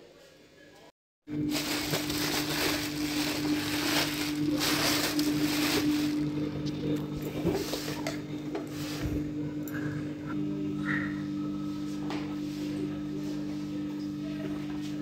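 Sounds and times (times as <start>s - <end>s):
plastic wrapping crinkling: 1.4s - 6.4s.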